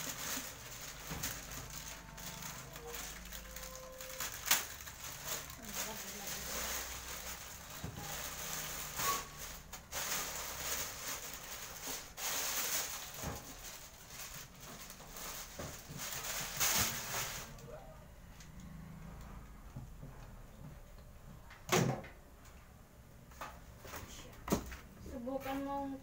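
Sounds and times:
plastic bag rustling and crinkling: 0.0s - 17.7s.

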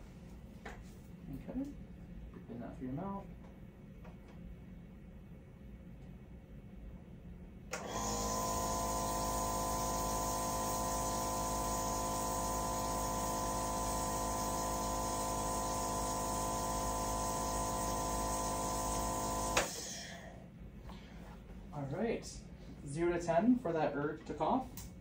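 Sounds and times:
nebulizer motor hum: 7.7s - 20.4s.

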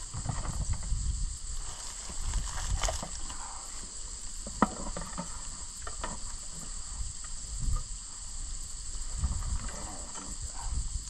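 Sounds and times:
insects chorus: 0.0s - 11.0s.

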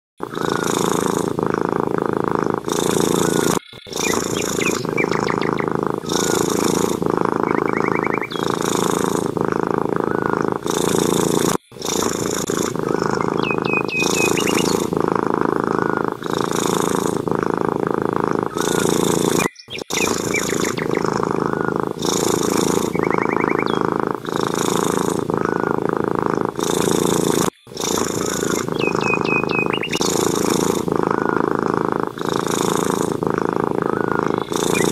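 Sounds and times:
cat purring: 0.2s - 34.9s
cat chirping: 2.4s - 9.0s, 12.5s - 16.4s, 18.4s - 25.8s, 27.8s - 31.4s, 33.8s - 34.9s.

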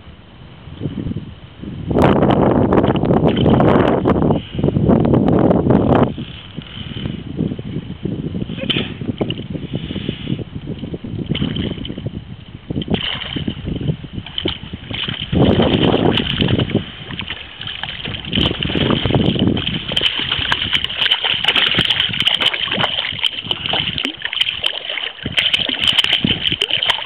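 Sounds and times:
fish splashing in water: 12.8s - 27.0s.

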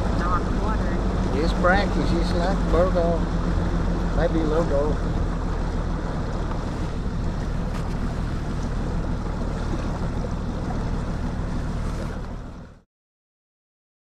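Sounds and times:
outboard motor running: 0.0s - 12.8s
water rushing past hull: 0.0s - 12.8s.

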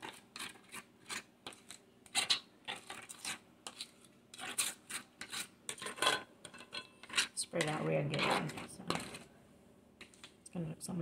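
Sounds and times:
spoon scraping crisp tostada: 0.0s - 9.3s.

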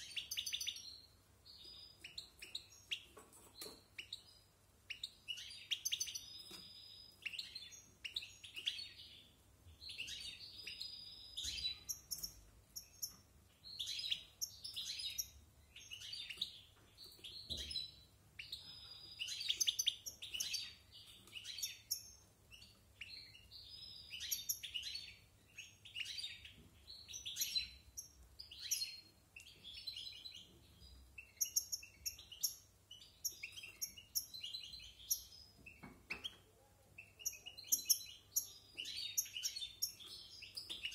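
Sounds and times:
goldfinch twittering song: 0.0s - 9.2s.

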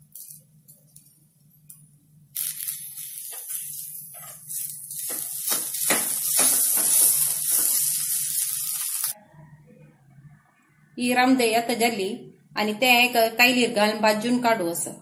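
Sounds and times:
potato filling sizzling in pan: 2.3s - 9.2s
spatula scraping and knocking pan: 3.2s - 8.5s.

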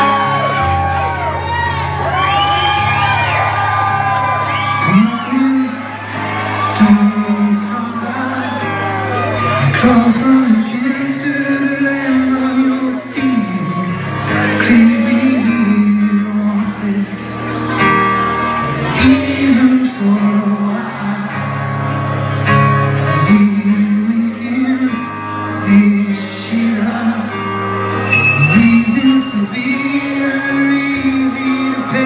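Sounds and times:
male singer with rock band: 4.7s - 17.8s, 18.6s - 21.6s, 23.0s - 27.4s, 28.0s - 32.0s.

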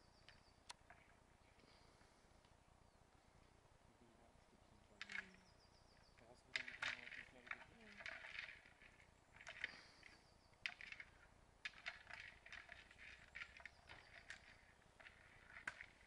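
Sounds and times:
twigs and leaves crackling: 4.9s - 16.0s.

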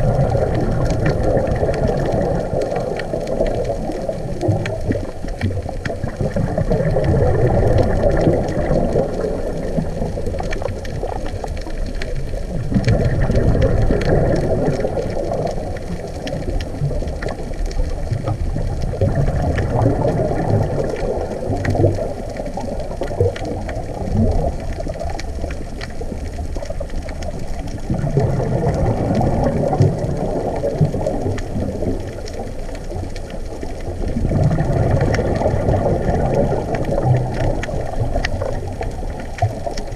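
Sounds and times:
diver exhaling bubbles underwater: 0.0s - 39.9s
faint clicks: 0.0s - 39.9s
steady low underwater rumble: 0.0s - 39.9s.

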